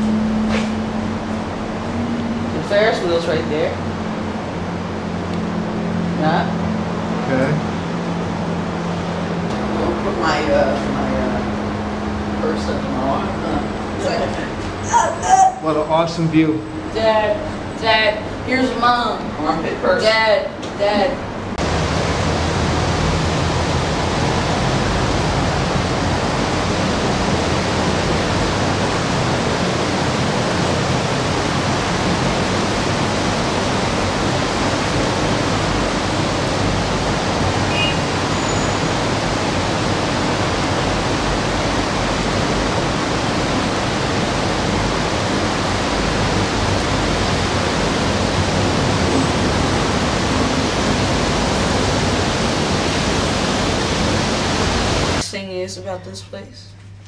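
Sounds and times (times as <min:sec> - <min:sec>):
loud rushing noise: 0:00.0 - 0:14.8, 0:21.2 - 0:55.2
low rumble: 0:00.0 - 0:14.9.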